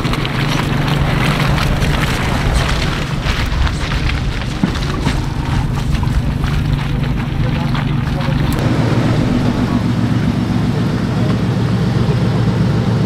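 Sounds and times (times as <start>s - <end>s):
tyres and body knocking: 0.0s - 8.6s
off-road vehicle engine drone: 0.0s - 13.0s.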